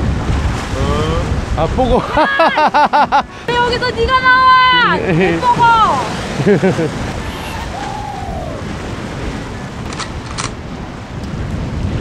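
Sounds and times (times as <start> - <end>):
wind buffeting microphone: 0.0 - 2.5, 3.4 - 12.0
sea surf against rocks: 0.0 - 12.0
sharp clicks: 9.8 - 10.6.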